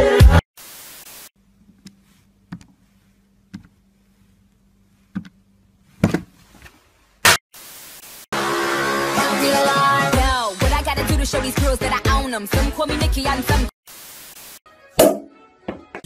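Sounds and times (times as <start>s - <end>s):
tv static hiss: 0.6s - 1.4s, 7.2s - 8.3s, 13.9s - 14.6s.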